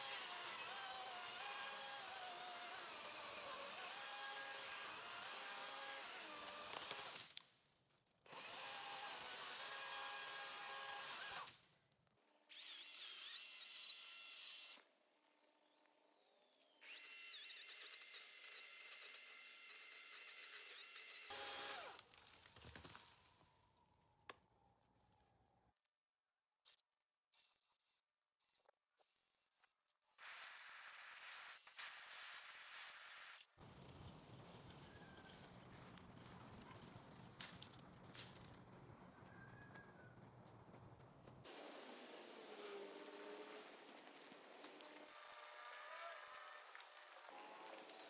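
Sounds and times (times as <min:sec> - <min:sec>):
electric chainsaw whining: 0:00.0 - 0:07.2, 0:08.3 - 0:11.5, 0:16.8 - 0:22.0, 0:42.4 - 0:48.0.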